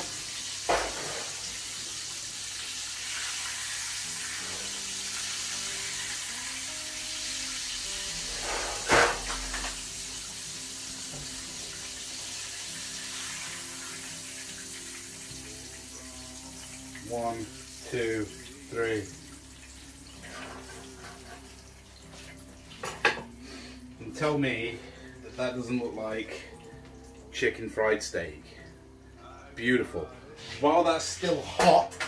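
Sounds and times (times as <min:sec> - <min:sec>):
meat sizzling in hot oil: 0:00.0 - 0:23.9.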